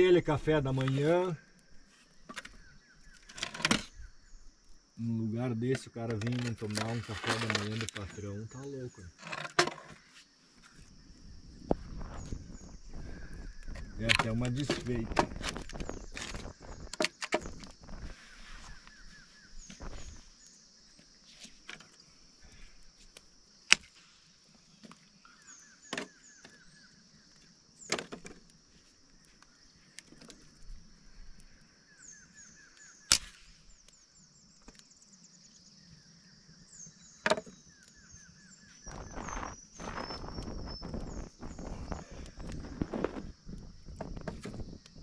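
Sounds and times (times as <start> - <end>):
steady high hiss: 10.0 - 45.0.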